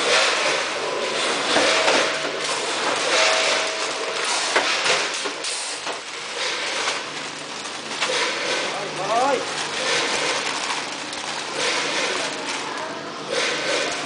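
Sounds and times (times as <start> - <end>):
sharp machine clacks: 0.0 - 7.1, 11.4 - 12.5, 13.3 - 14.0
packing machine clatter: 0.0 - 14.0.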